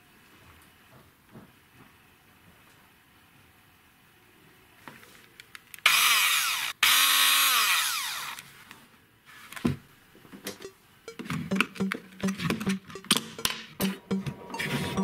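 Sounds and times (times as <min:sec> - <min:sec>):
hand blender motor whirring: 0:05.9 - 0:08.4.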